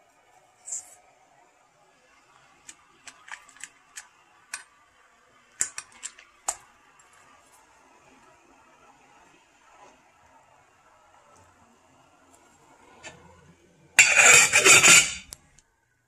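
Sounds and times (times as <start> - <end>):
fork clinking against metal pans: 14.0 - 15.3.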